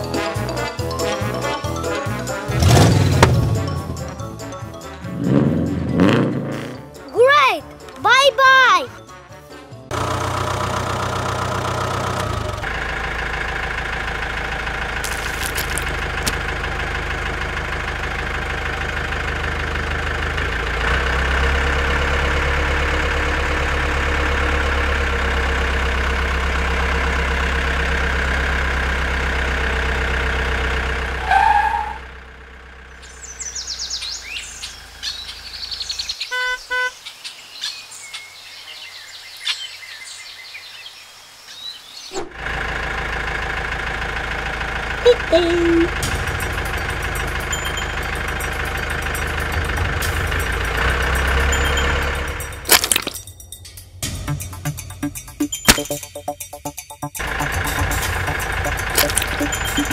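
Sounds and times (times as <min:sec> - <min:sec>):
tractor engine running: 0:00.0 - 0:36.2, 0:42.2 - 0:59.9
birds chirping: 0:32.9 - 0:42.2, 0:57.2 - 0:59.9
short horn beeps: 0:36.3 - 0:37.0.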